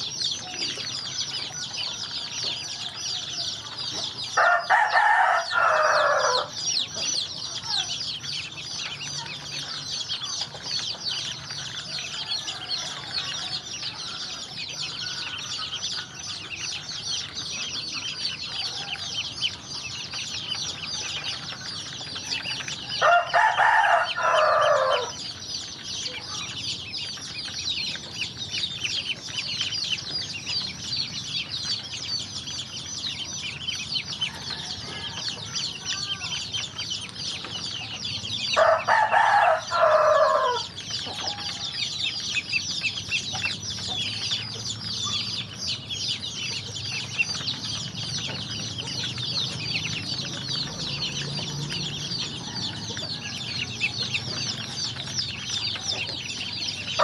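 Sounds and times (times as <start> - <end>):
ducklings peeping: 0.0 - 57.0
rooster crowing: 4.3 - 6.6, 11.9 - 14.4, 18.4 - 19.4, 22.3 - 25.2, 34.2 - 36.3, 38.6 - 41.7, 51.0 - 54.0.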